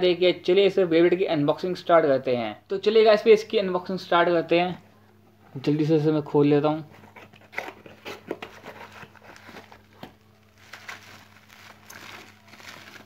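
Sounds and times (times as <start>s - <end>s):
faint low hum: 0.0s - 13.0s
bubble wrap crinkling: 7.0s - 13.0s.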